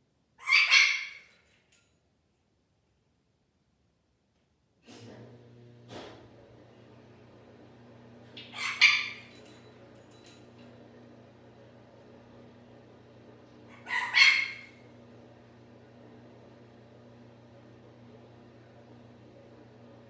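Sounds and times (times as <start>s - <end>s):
parrot calling loudly: 0.4s - 1.3s, 8.5s - 9.4s, 13.7s - 14.8s
parrot chirps: 0.4s - 1.3s, 8.5s - 9.3s, 13.7s - 14.8s.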